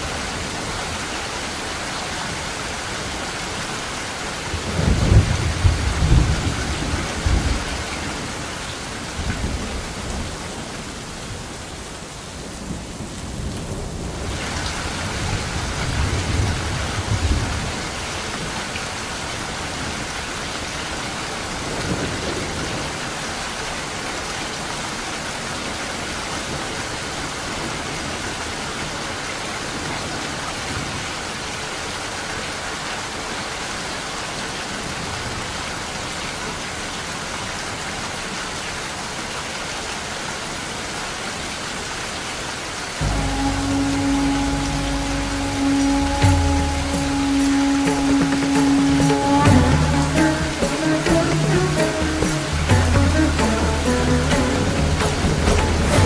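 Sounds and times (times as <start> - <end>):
heavy rain splashing: 0.0 - 56.0
thunder rumbling: 4.5 - 8.5, 12.7 - 18.7, 43.0 - 56.0.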